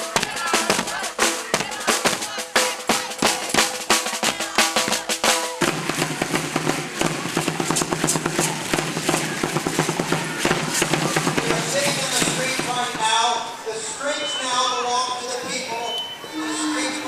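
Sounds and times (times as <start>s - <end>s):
marching drums beating: 0.0s - 13.6s.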